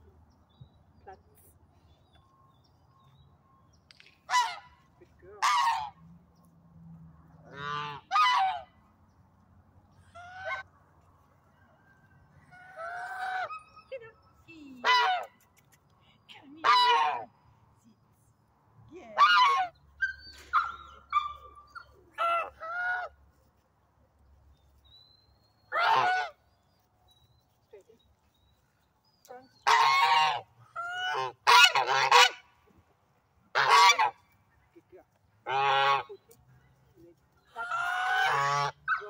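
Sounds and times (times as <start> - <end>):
geese honking: 5.4 - 6.0, 7.4 - 8.8, 25.7 - 26.4, 29.6 - 32.5, 33.5 - 34.2, 35.4 - 36.2, 37.5 - 39.0.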